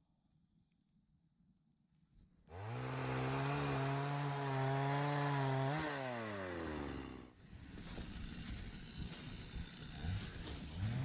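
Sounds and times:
chainsaw revving: 2.5 - 11.0.

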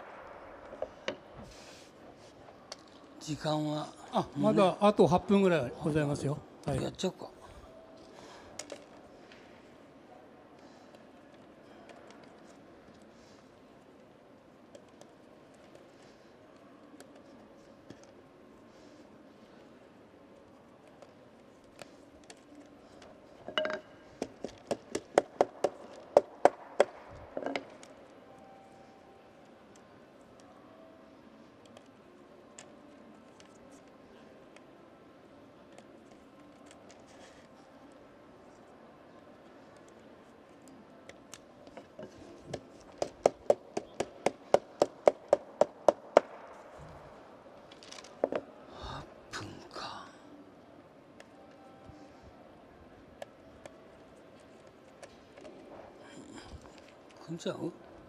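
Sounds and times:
sharp wooden knocks: 43.0 - 46.4.

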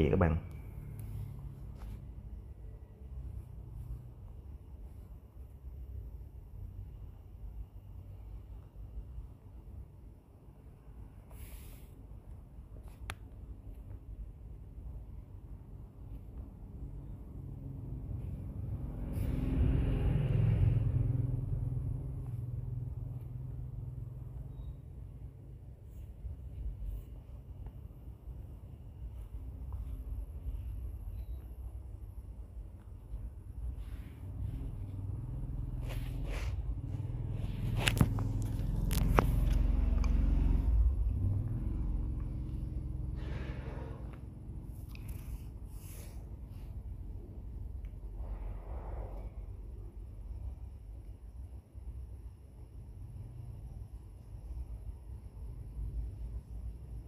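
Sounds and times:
road vehicle passing: 0.1 - 5.0, 16.8 - 27.6, 33.0 - 49.7.

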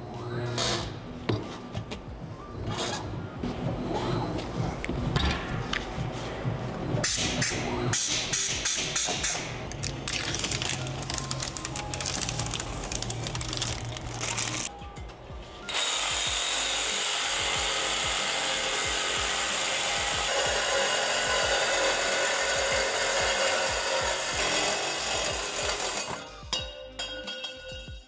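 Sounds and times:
reciprocating saw cutting steel pipe: 15.7 - 26.3.

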